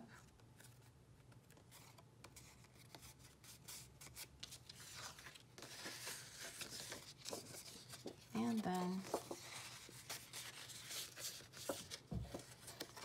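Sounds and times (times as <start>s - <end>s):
cardstock rustling and tapping: 5.2s - 13.0s.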